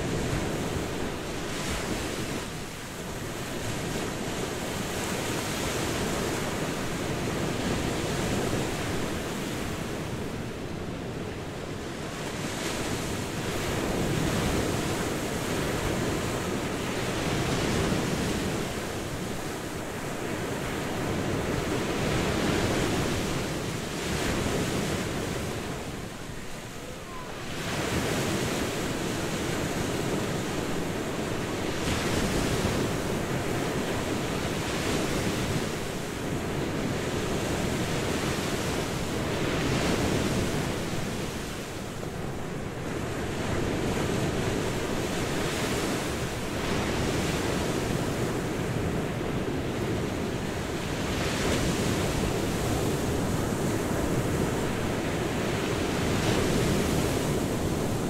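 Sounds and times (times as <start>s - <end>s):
waves breaking on beach: 0.0s - 58.0s.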